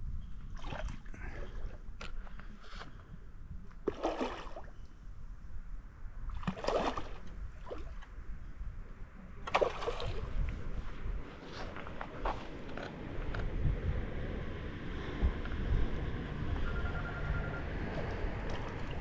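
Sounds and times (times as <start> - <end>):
fish thrashing water splashing: 3.9 - 4.6, 6.4 - 7.8, 9.5 - 10.3.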